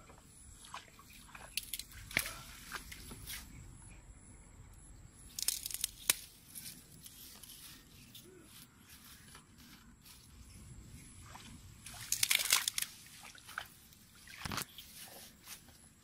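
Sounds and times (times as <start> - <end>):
grass and reeds rustling: 0.6 - 3.6, 5.3 - 16.0.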